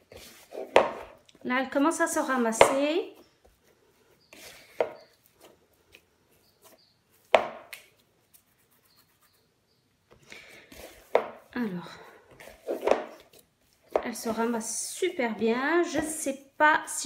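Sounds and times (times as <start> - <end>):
hands kneading dough: 0.0 - 1.3.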